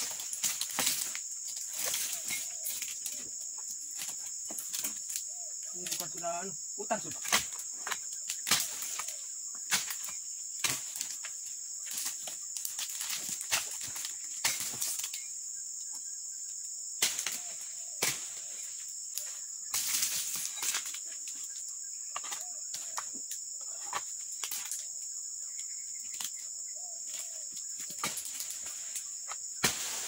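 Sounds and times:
chisel chopping palm fronds: 0:00.0 - 0:02.4, 0:07.2 - 0:11.2, 0:12.0 - 0:15.0, 0:17.0 - 0:18.4, 0:29.6 - 0:30.0
dry fronds dragged through undergrowth: 0:00.0 - 0:03.2
insect drone: 0:00.0 - 0:30.0.

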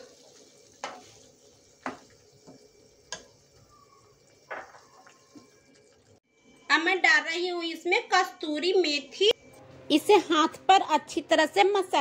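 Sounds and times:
gravy sizzling: 0:00.0 - 0:06.5.

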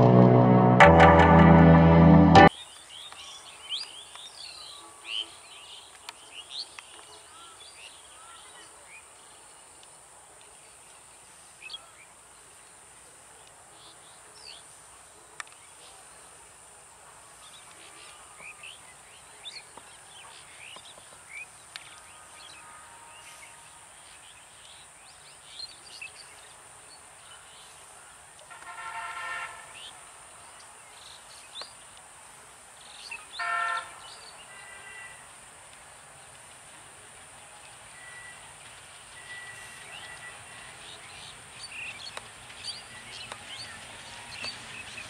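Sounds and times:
faint high-pitched hiss: 0:02.5 - 0:45.0.

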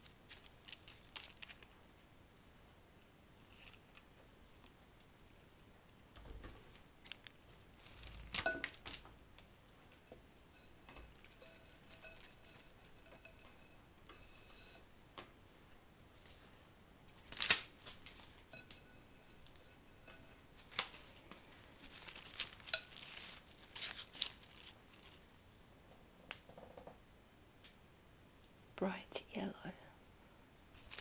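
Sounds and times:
rustle of leaves and plastic: 0:00.0 - 0:01.8, 0:03.4 - 0:04.0, 0:07.0 - 0:09.1, 0:17.1 - 0:25.4, 0:30.7 - 0:31.0.

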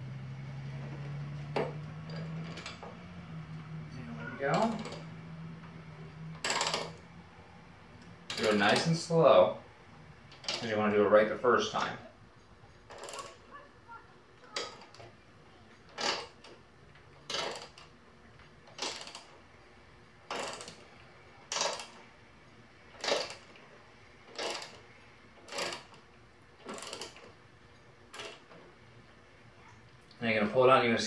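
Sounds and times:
ratchet clicking: 0:06.3 - 0:07.0, 0:12.4 - 0:13.6, 0:15.8 - 0:17.9, 0:18.6 - 0:19.4, 0:20.3 - 0:20.9, 0:21.5 - 0:22.0, 0:22.9 - 0:23.6, 0:24.3 - 0:26.0, 0:26.6 - 0:27.3, 0:28.1 - 0:28.6.

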